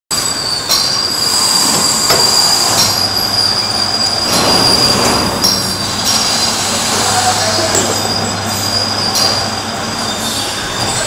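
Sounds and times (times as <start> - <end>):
lathe running with high whine: 0.2 - 11.0.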